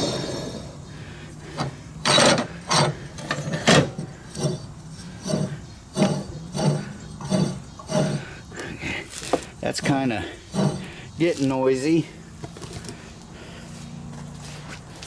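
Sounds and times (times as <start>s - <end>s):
pulley grinding rubs: 1.4s - 11.8s.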